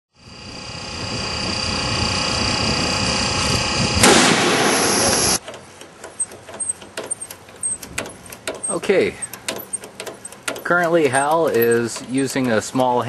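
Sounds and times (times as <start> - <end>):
steady hissing hum: 0.2 - 13.0
loud rushing noise: 0.3 - 5.4
faint clicks and knocks: 5.4 - 13.0.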